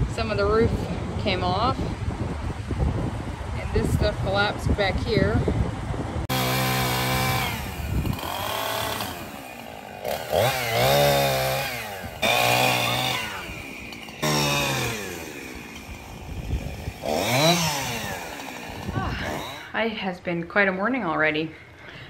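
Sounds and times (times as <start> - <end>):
chainsaw cutting branches: 6.3 - 19.8.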